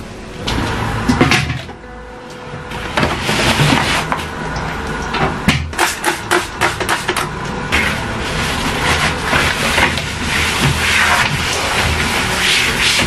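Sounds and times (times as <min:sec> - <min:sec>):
cloth rubbing on plastic: 0:07.8 - 0:13.0.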